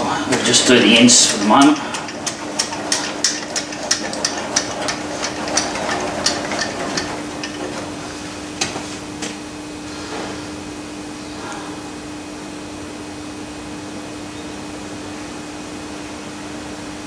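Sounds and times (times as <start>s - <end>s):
steady low hum: 0.0s - 17.0s
lathe carriage clicking: 0.3s - 9.4s.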